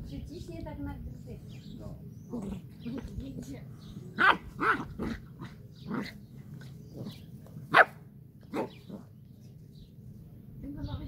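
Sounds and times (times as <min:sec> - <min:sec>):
puppy barking and yipping: 0:04.2 - 0:06.1, 0:07.7 - 0:09.0.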